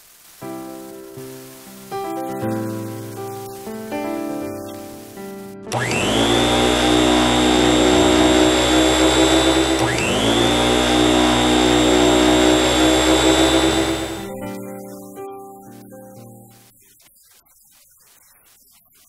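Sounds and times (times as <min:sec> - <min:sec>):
vacuum cleaner motor whining: 0:04.6 - 0:14.6.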